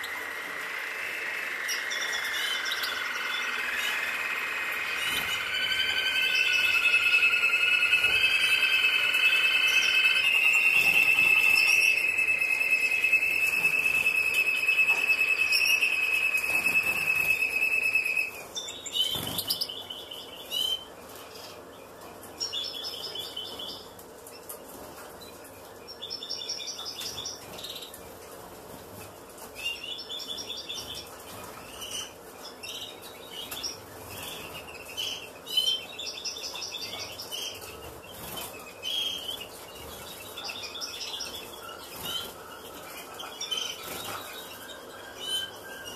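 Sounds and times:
loud high-pitched tone: 0.0 - 18.5
finches chirping in trills: 0.0 - 20.8, 32.7 - 45.9.

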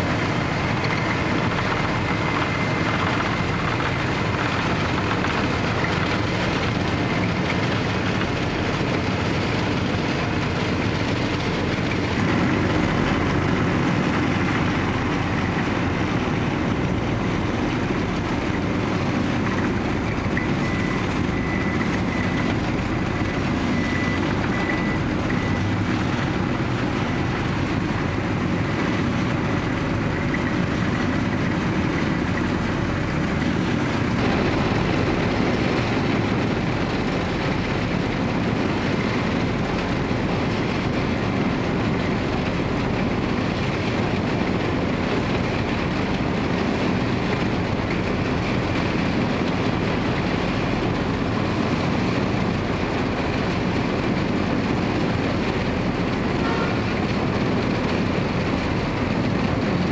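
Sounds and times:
paver diesel engine: 0.0 - 59.9
road roller engine: 0.0 - 59.9.

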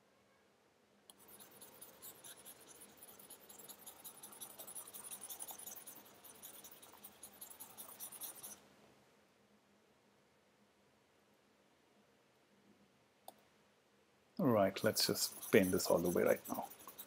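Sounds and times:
stylus scratching graphics tablet: 1.1 - 8.6, 14.7 - 17.0.

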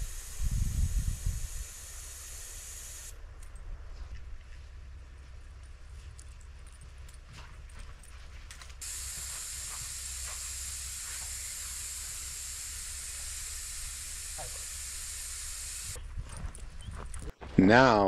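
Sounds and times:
air hissing from tire valve: 0.0 - 3.2, 8.8 - 16.0.

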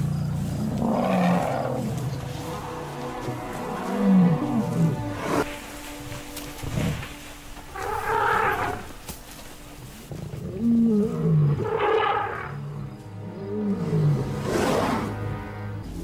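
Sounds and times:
lions snarling and growling: 0.0 - 2.7, 10.2 - 15.2
faint background music: 0.0 - 16.0.

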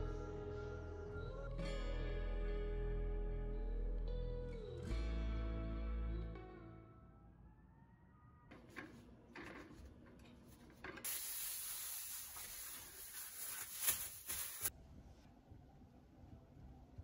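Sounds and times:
cloth wiping countertop: 10.5 - 14.7
spray bottle spritzing: 11.0 - 14.7
steady hiss: 11.0 - 14.7
soft scuffs: 12.4 - 14.7.

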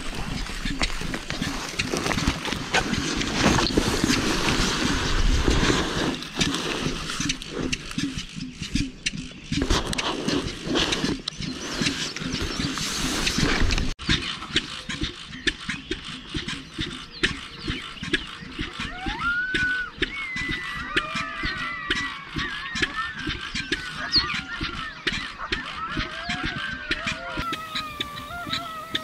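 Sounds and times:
footsteps crunching through stubble: 0.0 - 8.1
furry decoy rustling: 0.0 - 14.0
wind rumbling on microphone: 0.0 - 14.0.

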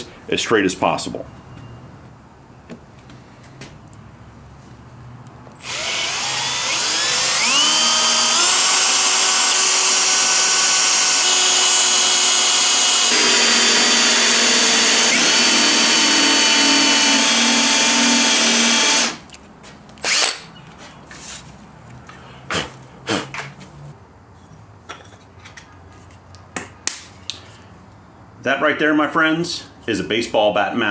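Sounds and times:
power drill boring into wood: 5.6 - 19.2, 20.0 - 20.4.

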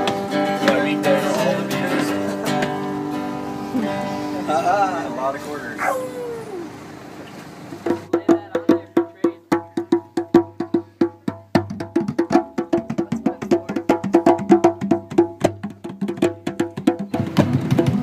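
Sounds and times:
strummed guitar: 0.0 - 6.1
hand drums: 7.8 - 18.0.

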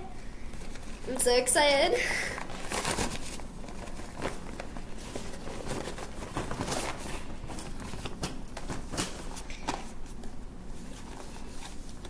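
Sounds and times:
gift bag rustling and crinkling: 2.4 - 10.1.

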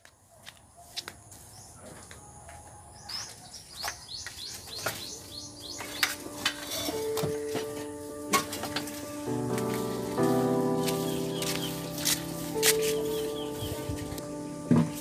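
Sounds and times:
birds chirping: 0.2 - 7.5, 9.0 - 15.0
music: 4.8 - 15.0.

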